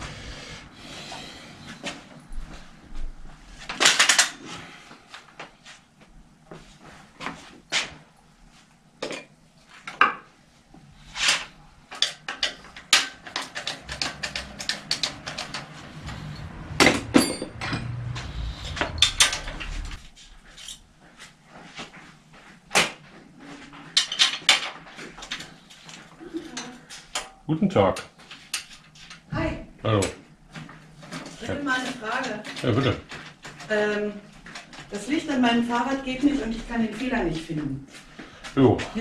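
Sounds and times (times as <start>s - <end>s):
hand tools clinking on bike parts: 12.0s - 19.5s
low rumble: 13.8s - 20.6s.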